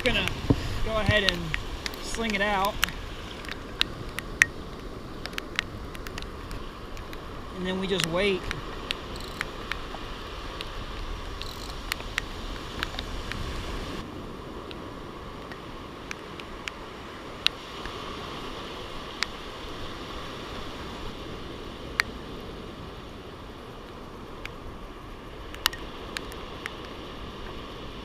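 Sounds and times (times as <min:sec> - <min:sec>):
muffled breaking surf: 0:00.0 - 0:28.0
wind: 0:00.0 - 0:28.0
sharp ticks: 0:05.2 - 0:07.2, 0:08.0 - 0:09.9, 0:11.3 - 0:13.4.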